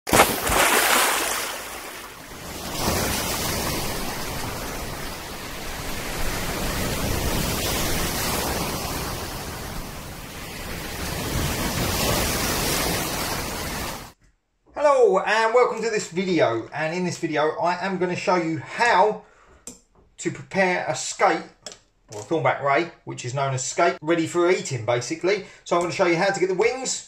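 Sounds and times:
waves breaking: 0:00.1 - 0:14.2.

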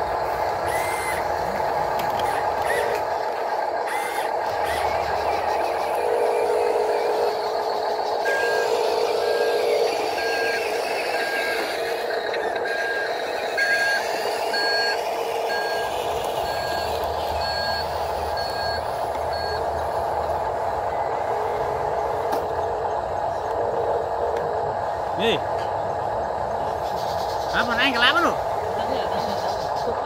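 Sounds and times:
steady engine-like hum: 0:00.0 - 0:30.0
reversing alarm beeps: 0:08.2 - 0:19.8.

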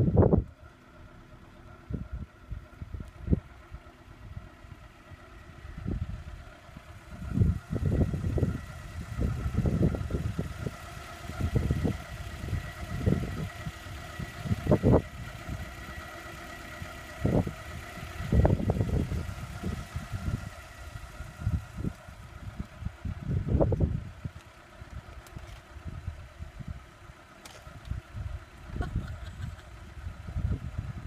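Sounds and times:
vehicle engine idling: 0:00.0 - 0:31.0
low rumbles and thumps: 0:05.6 - 0:15.7, 0:17.2 - 0:31.0.

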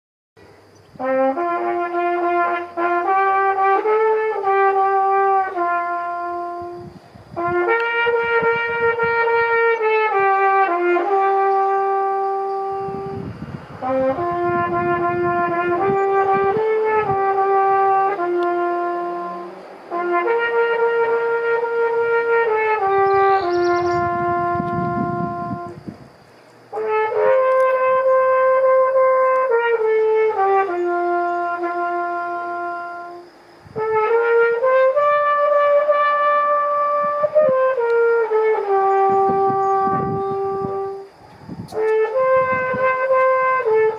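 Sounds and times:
flugelhorn slow melody: 0:00.9 - 0:43.9.

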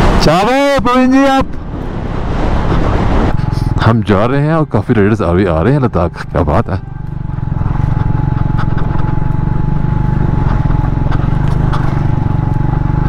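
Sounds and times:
gravel crunching under tyres: 0:02.3 - 0:13.0
motorcycle engine running steadily: 0:03.3 - 0:13.0.

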